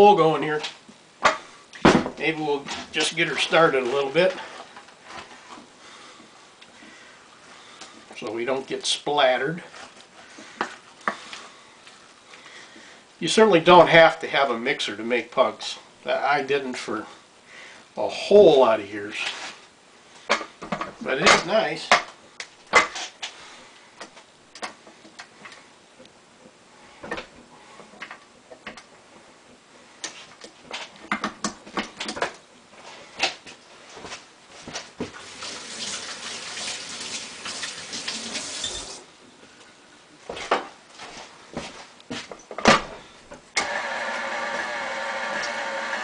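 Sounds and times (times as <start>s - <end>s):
steady hiss: 32.7s - 39.8s
stand mixer motor whine: 43.6s - 46.0s.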